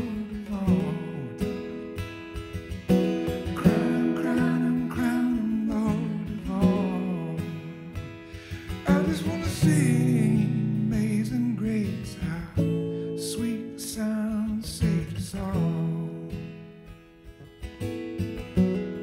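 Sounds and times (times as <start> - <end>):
man singing: 0.0 - 1.9, 3.4 - 16.7
acoustic guitar strummed: 0.0 - 19.0.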